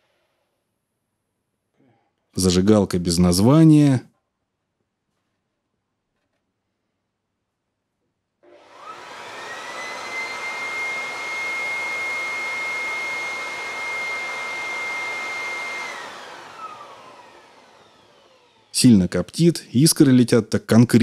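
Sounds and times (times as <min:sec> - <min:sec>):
leaf blower whining: 0:08.4 - 0:19.1.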